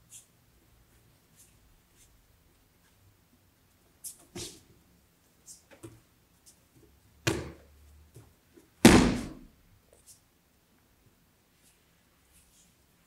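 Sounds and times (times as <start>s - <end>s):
bodies thudding onto mats: 8.8s - 9.5s.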